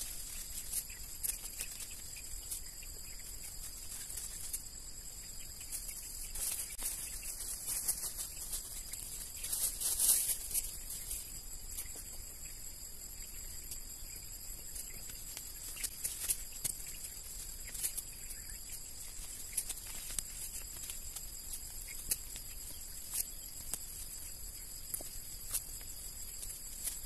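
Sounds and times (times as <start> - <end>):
weeds pulled snapping and rustling: 0.0 - 2.6, 15.3 - 18.1, 19.1 - 24.1.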